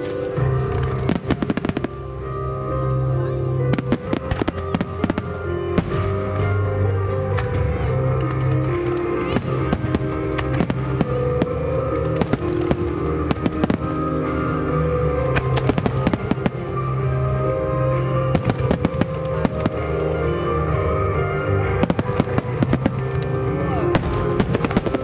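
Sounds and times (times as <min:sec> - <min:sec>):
fireworks bursting: 0:00.0 - 0:02.1, 0:09.2 - 0:14.3, 0:15.3 - 0:17.0, 0:18.3 - 0:20.0, 0:21.7 - 0:23.3, 0:23.9 - 0:25.0.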